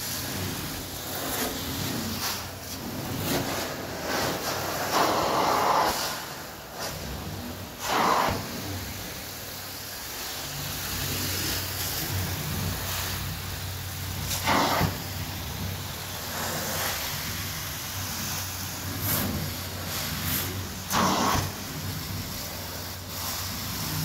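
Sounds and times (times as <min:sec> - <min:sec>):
carpet extraction vacuum hum: 0:00.0 - 0:24.0.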